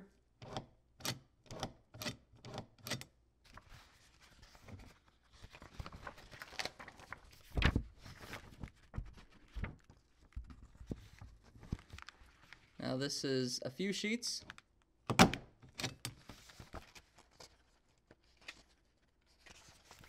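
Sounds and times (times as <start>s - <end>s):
rustling and handling noise: 3.4s - 12.8s, 16.0s - 20.0s.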